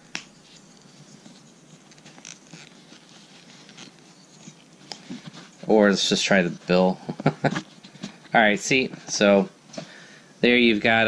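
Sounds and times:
plastic clip scratching and rubbing: 1.3s - 5.2s.

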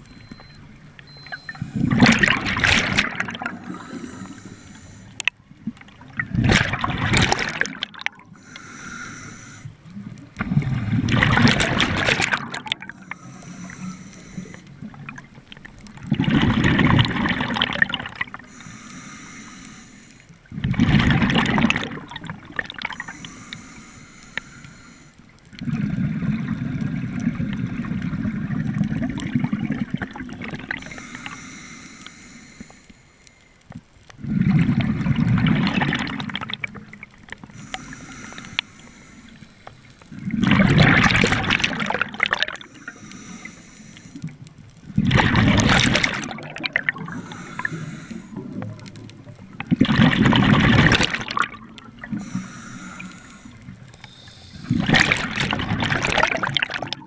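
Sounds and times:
exhaled air bubbles gurgling: 1.1s - 8.6s, 9.8s - 18.6s, 20.4s - 23.6s, 25.5s - 31.4s, 34.2s - 38.6s, 40.0s - 57.0s
regulator inhaling hiss: 1.5s - 1.9s, 3.7s - 5.2s, 8.3s - 9.8s, 12.9s - 14.8s, 18.4s - 20.4s, 22.9s - 25.3s, 30.8s - 33.6s, 37.5s - 40.0s, 42.6s - 44.4s, 47.0s - 48.6s, 52.1s - 54.9s.

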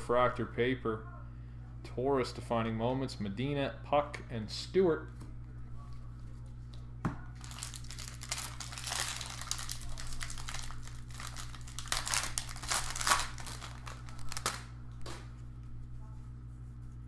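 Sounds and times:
wrapper tearing and crinkling: 7.4s - 14.7s.

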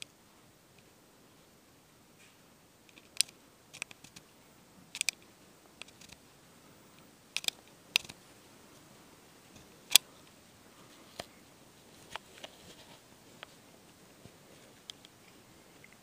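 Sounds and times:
faint steady hiss: 0.0s - 16.0s
camera handling clicks: 7.4s - 8.2s.

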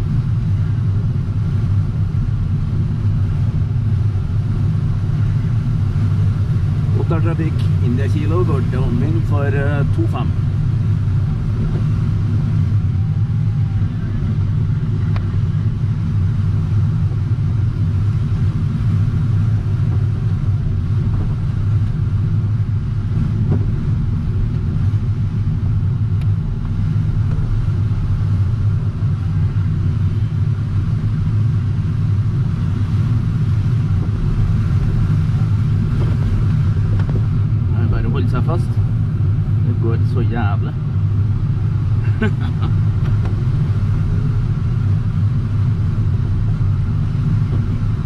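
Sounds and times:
airflow rumble around canopy: 0.0s - 48.0s
faint gliding tone: 8.5s - 40.2s.

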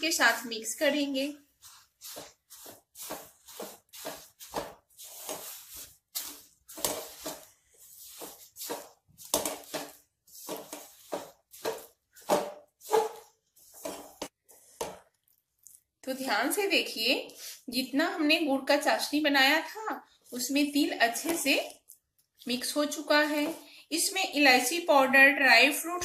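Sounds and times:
spatula scraping metal pan: 1.6s - 14.3s.

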